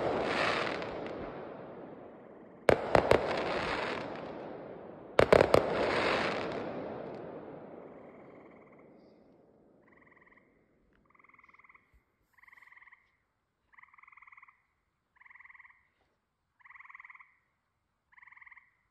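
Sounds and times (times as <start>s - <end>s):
firework rumble: 0.0s - 8.6s.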